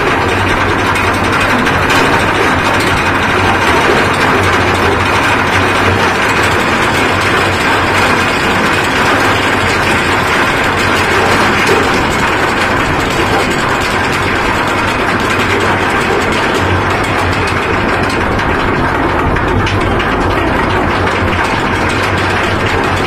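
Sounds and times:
low mechanical hum: 0:00.0 - 0:23.0.

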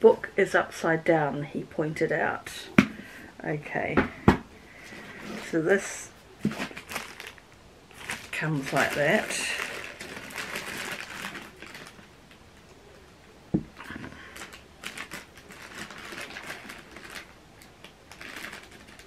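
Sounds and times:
gift wrapping rustling: 0:04.7 - 0:12.7, 0:13.7 - 0:19.0.

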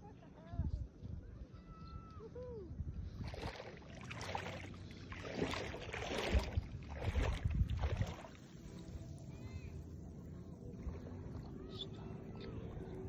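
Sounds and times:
wind rumble on microphone: 0:00.0 - 0:13.0
seawater sloshing and splashing: 0:03.2 - 0:09.4.

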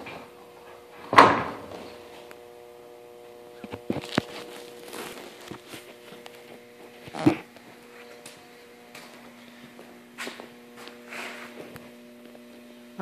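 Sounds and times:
electrical hum: 0:00.0 - 0:13.0
footsteps: 0:03.6 - 0:12.4.

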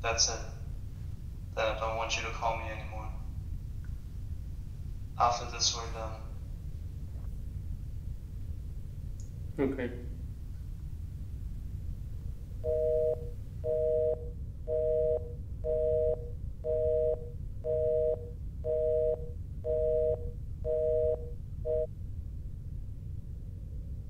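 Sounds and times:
low steady hum: 0:00.0 - 0:24.0
telephone busy tone: 0:12.6 - 0:21.9.

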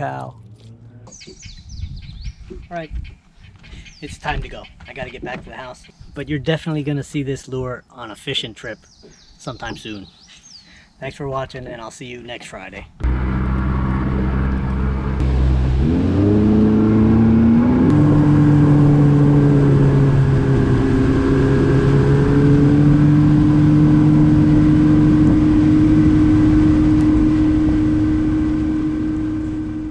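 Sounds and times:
outboard motor accelerating: 0:13.0 - 0:29.9.

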